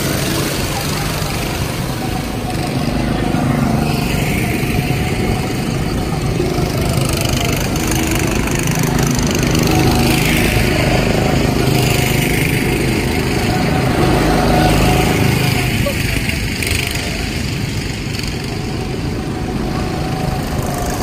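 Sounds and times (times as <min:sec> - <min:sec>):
go-kart engines driving past: 0:00.0 - 0:21.0.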